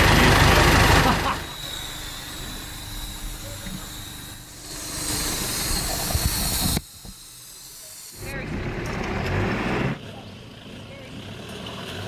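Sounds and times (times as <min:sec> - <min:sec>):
vehicle engine running: 0:00.0 - 0:04.0, 0:08.2 - 0:12.0.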